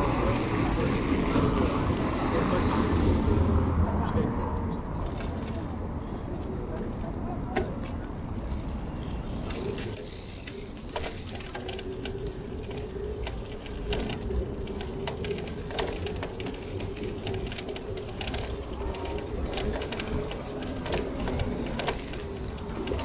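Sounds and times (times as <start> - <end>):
bicycle mechanical hum: 0.0 - 23.0
bicycle parts ticking and clicking: 4.6 - 6.6, 7.5 - 23.0.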